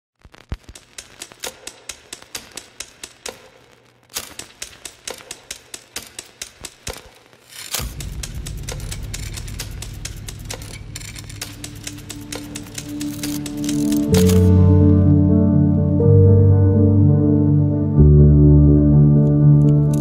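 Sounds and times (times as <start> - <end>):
typewriter keys clacking: 0.7 - 3.5, 4.1 - 14.6, 19.6 - 20.0
deep low music drone: 7.8 - 20.0.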